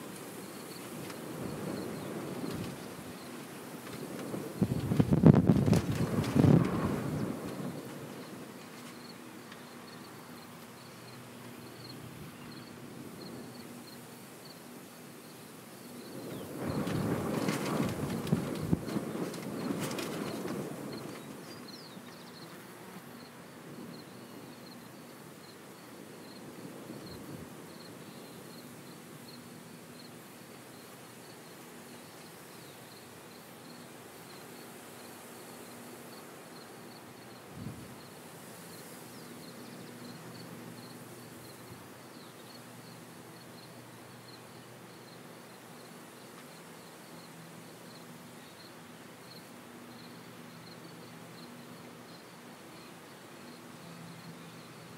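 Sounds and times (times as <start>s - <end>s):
distant combine harvesters hum: 0.0s - 54.9s
insect chirping: 0.0s - 54.9s.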